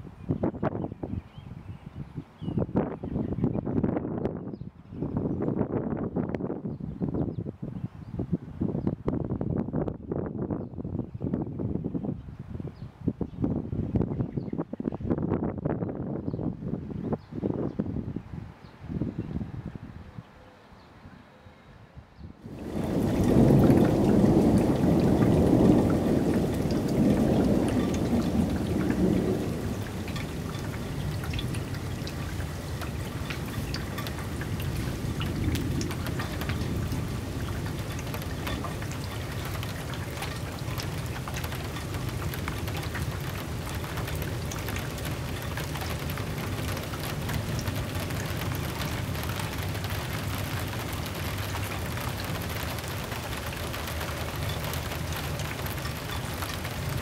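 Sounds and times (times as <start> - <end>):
steady rain: 22.4 - 57.0
raindrop hits: 22.5 - 57.0
thunder rumbling: 22.5 - 57.0.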